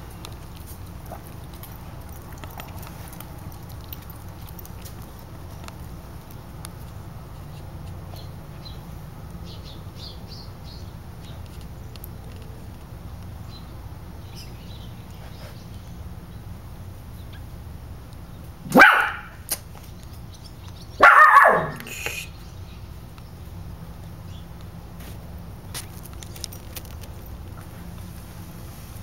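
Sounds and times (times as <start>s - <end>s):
dog barking: 18.7s - 19.4s, 21.0s - 21.9s.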